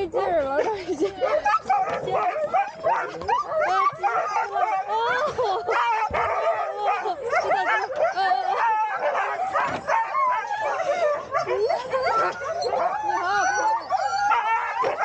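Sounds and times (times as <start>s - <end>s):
dogs barking and yelping: 0.0s - 15.0s.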